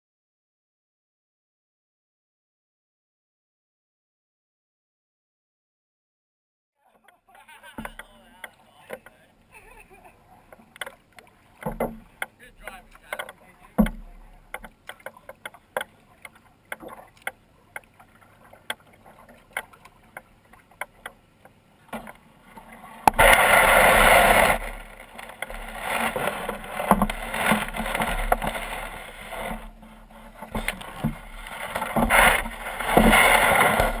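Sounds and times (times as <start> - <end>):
canoe bumps: 7.0 - 9.3, 9.9 - 34.0
canoe scraping on gravel: 10.1 - 17.2, 21.9 - 34.0
knocks against canoe hull: 11.6 - 12.4, 13.0 - 15.9, 25.4 - 28.6.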